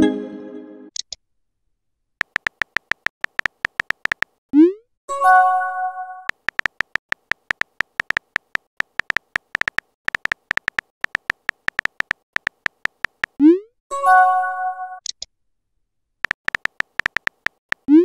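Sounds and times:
keyboard tap clicks: 2.2s - 4.4s, 6.3s - 13.4s, 16.2s - 17.9s.

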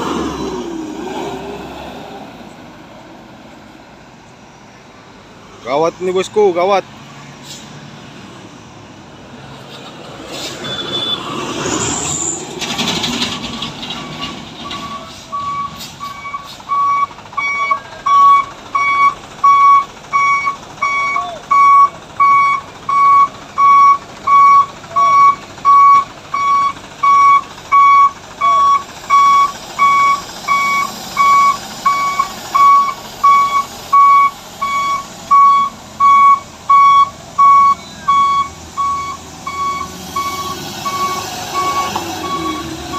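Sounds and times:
brief high whistle: 10.5s - 11.2s
truck reversing alarm beeping: 10.5s - 12.3s, 13.1s - 42.9s.

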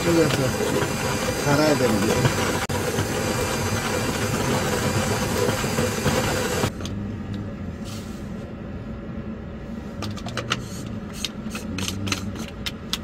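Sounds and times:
electric coffee grinder running: 0.0s - 6.7s.

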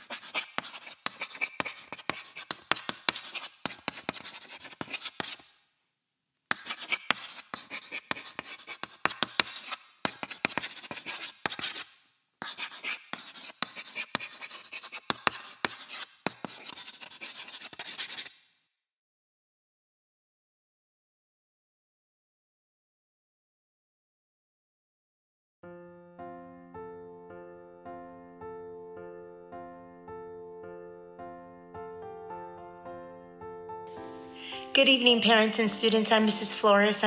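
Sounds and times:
chalk scratching on chalkboard: 0.0s - 5.6s, 6.5s - 18.4s
chalk tapping: 0.0s - 5.6s, 6.5s - 18.4s.

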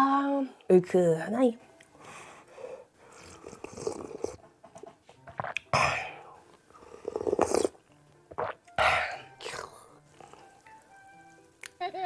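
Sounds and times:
slurping broth from a spoon: 3.1s - 4.4s, 6.8s - 8.6s, 9.2s - 10.7s.

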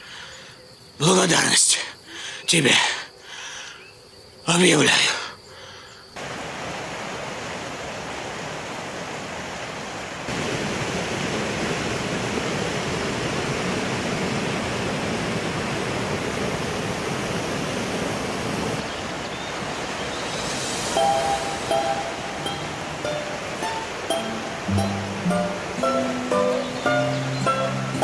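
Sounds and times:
waterfall and rapids rushing: 6.2s - 28.0s.

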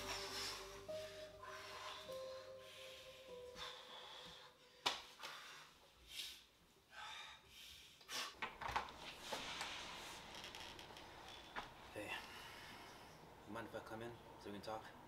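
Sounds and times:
soft rustles: 8.8s - 11.8s.

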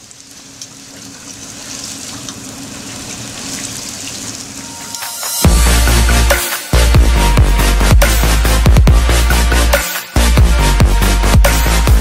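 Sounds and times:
hot oil sizzling and crackling: 0.0s - 8.6s
electronic dance music: 5.0s - 12.0s.

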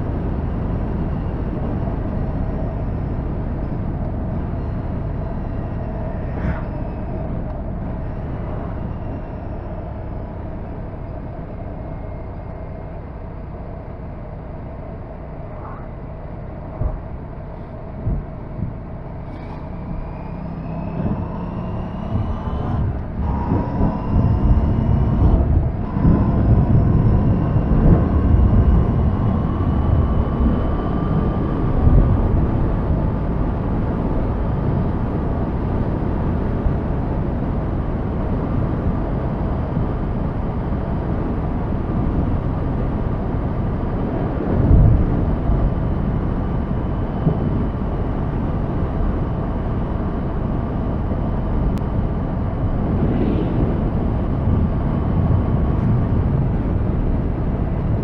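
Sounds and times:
wind rumble on microphone: 0.0s - 58.0s
motorcycle engine cruising: 14.7s - 36.2s.

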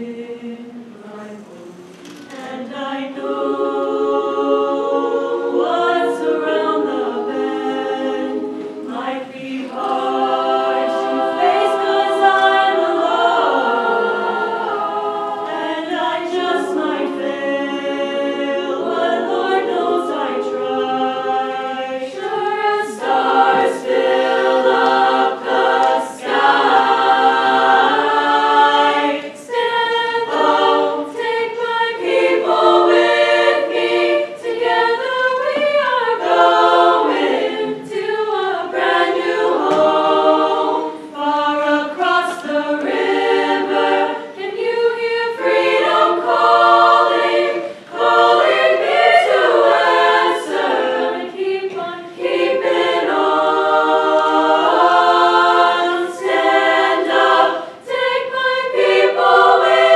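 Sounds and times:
girls choir singing in harmony: 0.0s - 59.9s.

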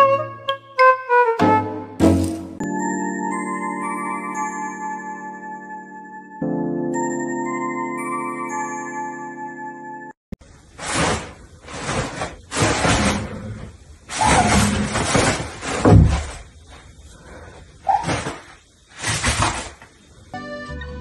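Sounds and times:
toilet paper rustling: 10.5s - 20.2s
dull bump: 14.1s - 16.6s.

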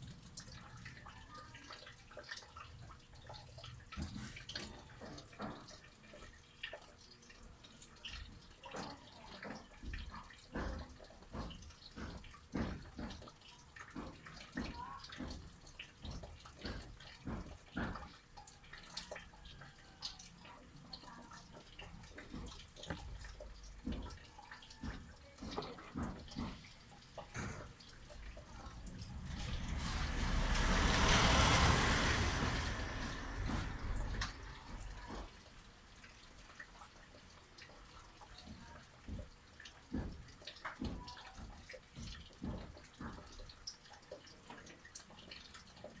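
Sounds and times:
rainwater dripping and splashing: 0.0s - 46.0s
rushing noise: 28.5s - 35.0s.

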